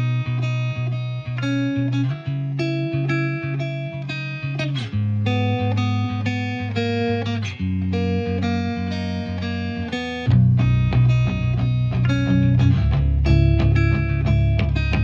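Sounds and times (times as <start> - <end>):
plucked guitar melody: 0.0 - 15.0
steady bass line: 7.6 - 15.0.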